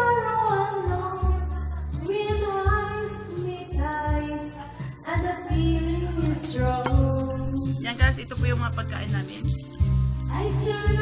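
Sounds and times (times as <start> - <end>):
song with high singing voice: 0.0 - 11.0.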